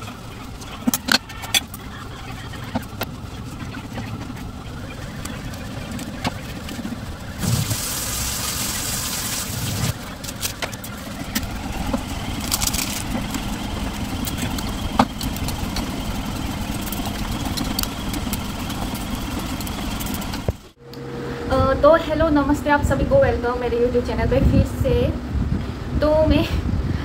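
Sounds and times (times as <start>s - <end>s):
machine hum: 0.0s - 25.6s
running tap water: 7.4s - 10.0s.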